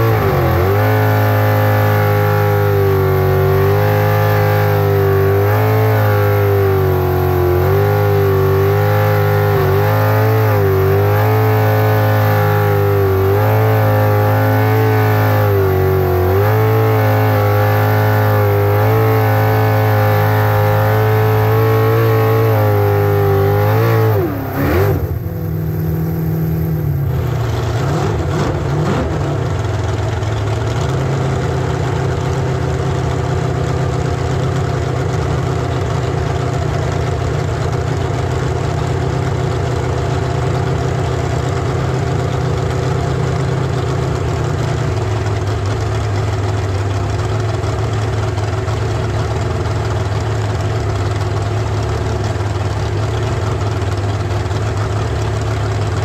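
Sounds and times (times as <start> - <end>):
boat engine revving: 0.0 - 29.9.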